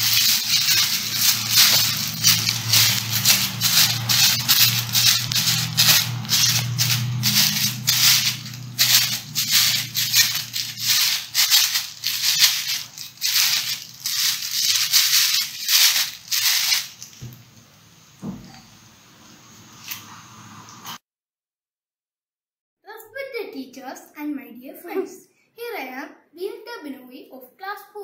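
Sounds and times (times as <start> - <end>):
plastic bag crinkling: 0.0 - 17.3.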